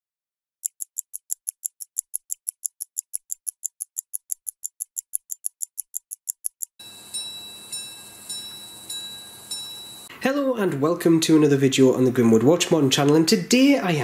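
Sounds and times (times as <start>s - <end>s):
watch ticking: 0.6s - 10.1s
faint hiss with high tone: 6.8s - 10.2s.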